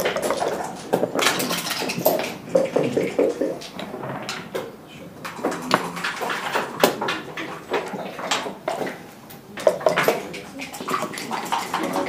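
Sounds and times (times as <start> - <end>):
game pieces clicking on board: 5.3 - 9.0.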